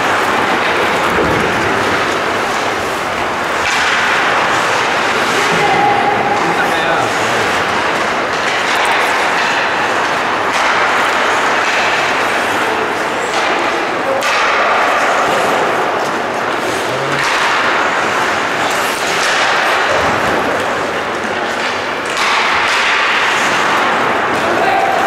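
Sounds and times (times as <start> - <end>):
skates scraping ice: 0.0 - 25.0
sticks and puck clacking: 0.0 - 25.0
thuds against rink boards: 0.0 - 25.0.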